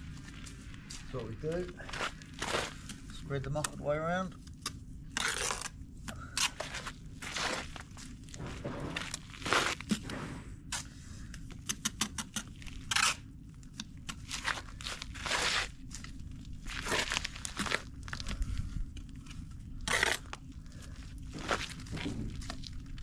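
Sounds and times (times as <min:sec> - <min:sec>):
footsteps on gritty ground: 0:00.0 - 0:03.0, 0:06.5 - 0:10.1, 0:14.2 - 0:23.0.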